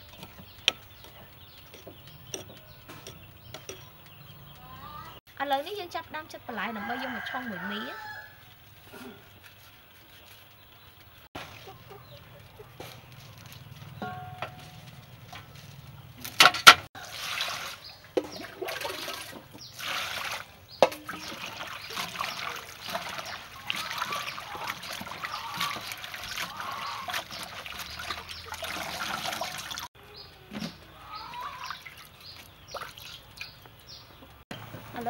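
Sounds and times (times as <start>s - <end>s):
hands splashing leaves in water: 17.0s - 29.9s, 31.4s - 33.6s.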